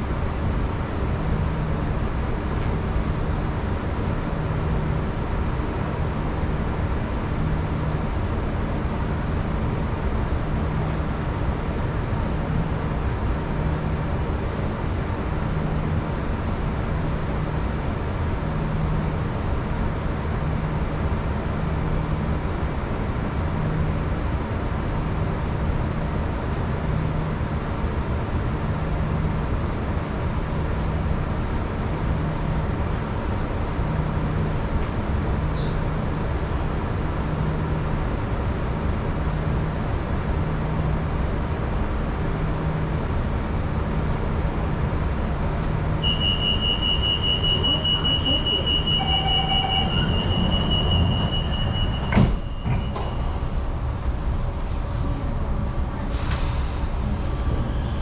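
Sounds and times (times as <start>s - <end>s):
train car hum: 0.0s - 58.0s
high-pitched door warning tone: 46.0s - 53.6s
train doors sliding shut: 47.7s - 55.4s, 56.0s - 58.0s.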